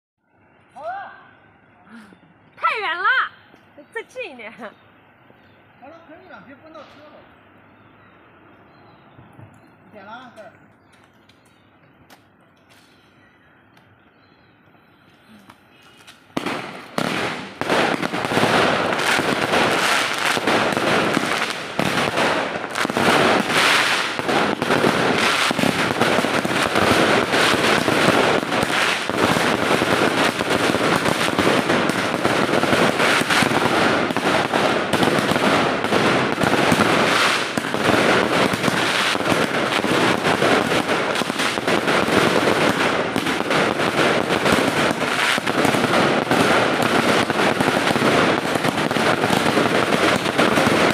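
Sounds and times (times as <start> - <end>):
fireworks crackling and popping: 15.4 - 50.9.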